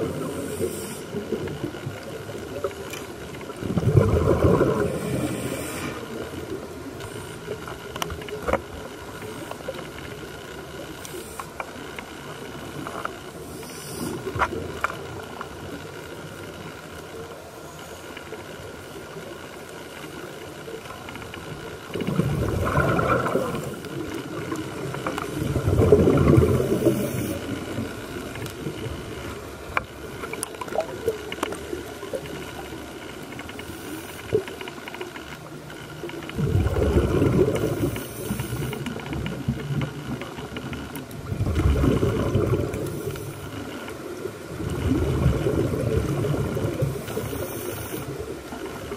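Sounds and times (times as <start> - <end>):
underwater hiss of water: 0.0 - 2.6, 3.4 - 7.8, 11.0 - 11.6, 12.8 - 14.6, 21.9 - 30.9, 31.8 - 34.7, 36.3 - 39.8, 41.4 - 48.9
faint hum: 0.0 - 48.9
gurgling bubble surges: 3.4 - 5.4, 21.9 - 29.2, 36.2 - 43.3, 44.1 - 47.3.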